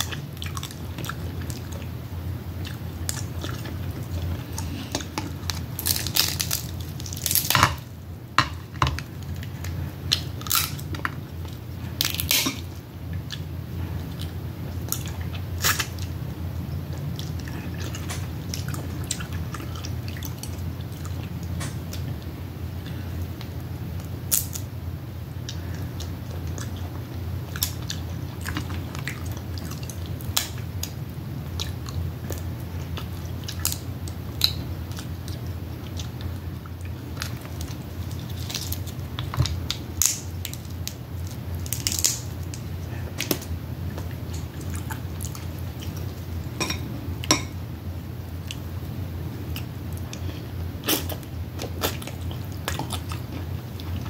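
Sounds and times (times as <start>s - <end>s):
steady low hum: 0.0s - 54.0s
wet chewing and smacking: 2.6s - 7.6s, 16.8s - 22.3s, 25.4s - 46.3s, 49.5s - 54.0s.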